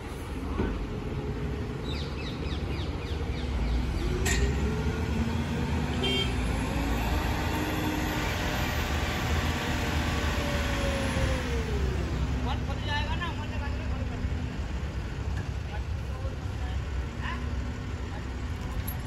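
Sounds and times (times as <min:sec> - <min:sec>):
diesel truck engine revving: 0:03.2 - 0:15.4.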